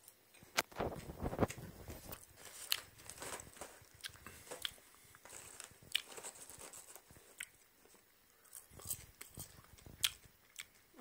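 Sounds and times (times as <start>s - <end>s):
popcorn crunching: 0.0s - 11.0s
paper bag rustling: 0.7s - 7.3s.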